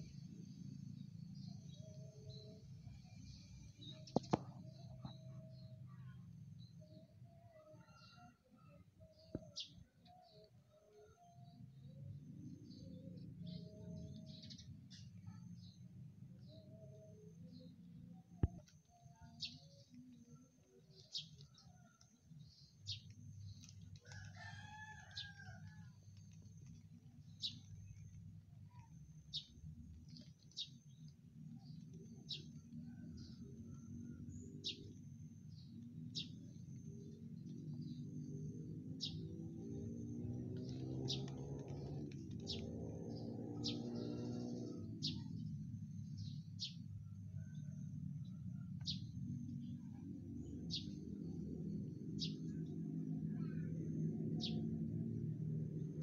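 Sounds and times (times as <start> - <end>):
steady low hum: 0.0 - 7.4
small bird chirping: 0.0 - 47.7, 48.3 - 54.8
faint rooster crowing: 6.9 - 9.3, 23.9 - 26.3, 32.3 - 35.6, 43.1 - 45.5, 46.2 - 49.3.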